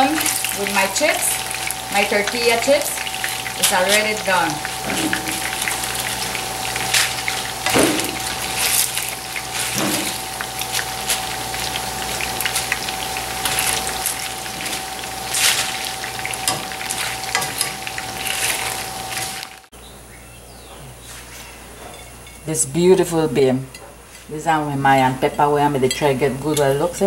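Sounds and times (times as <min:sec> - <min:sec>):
chips sizzling in frying oil: 0:00.0 - 0:19.7
faint steady hum: 0:00.0 - 0:27.0.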